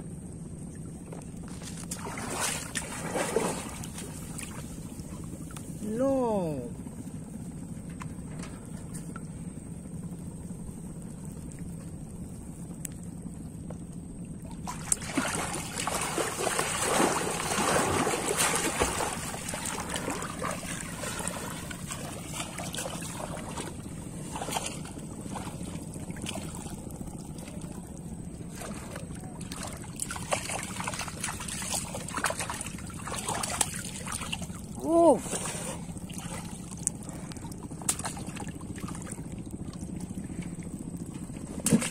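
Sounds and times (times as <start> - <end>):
water sloshing and splashing: 0.4 - 41.9
fish thrashing at surface: 1.5 - 4.7, 14.6 - 26.7.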